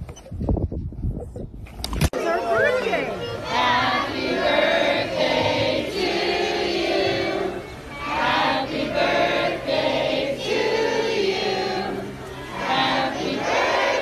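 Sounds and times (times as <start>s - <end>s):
group of voices singing: 3.4s - 14.0s.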